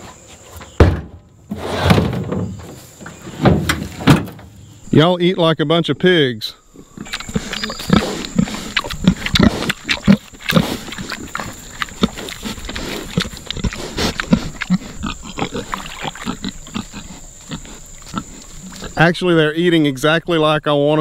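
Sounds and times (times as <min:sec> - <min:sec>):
pigs grunting and eating: 0:06.6 - 0:19.4.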